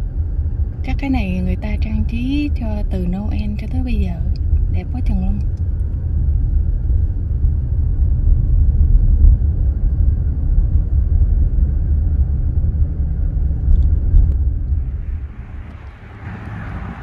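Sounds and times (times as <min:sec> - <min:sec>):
car rolling on paved road: 0:03.6 - 0:17.0.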